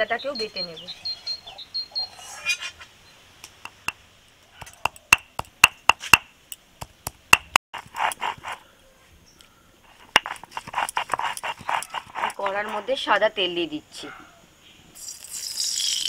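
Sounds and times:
stone pestle knocking on stone: 4.6 - 7.6, 10.1 - 12.4
dog barks: 14.0 - 14.4.

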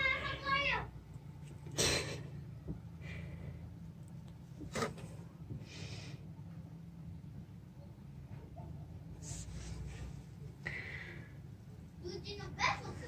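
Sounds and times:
faint low hum: 0.0 - 13.0
breaths close to microphone: 9.4 - 11.5.

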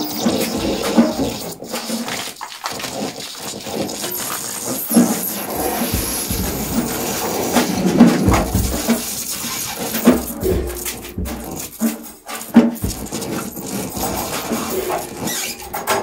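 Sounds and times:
clicks rattles and scrapes: 0.0 - 16.0
low thuds: 5.9 - 7.0, 12.8 - 13.5.

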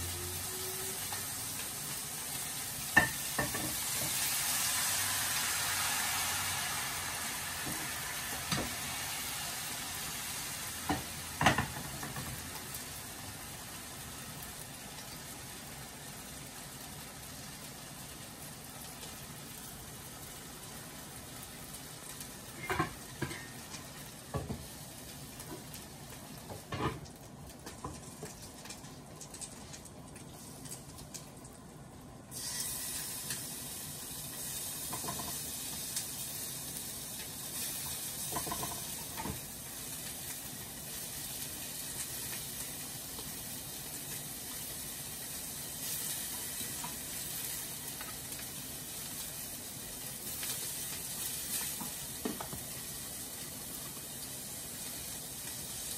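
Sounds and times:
food frying in oil: 0.0 - 55.9
utensils clinking against pans: 22.6 - 23.8, 38.3 - 39.4.

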